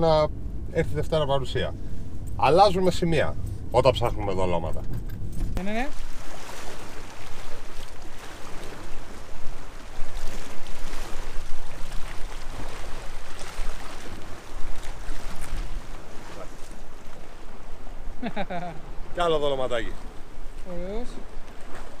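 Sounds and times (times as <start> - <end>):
wind rumbling on microphone: 0.0 - 19.3
sea washing against shore: 5.6 - 22.0.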